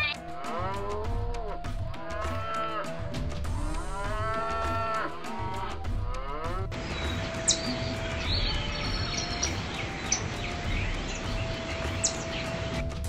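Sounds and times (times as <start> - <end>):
music with steady beat: 0.0 - 13.0
cattle mooing: 3.8 - 6.7.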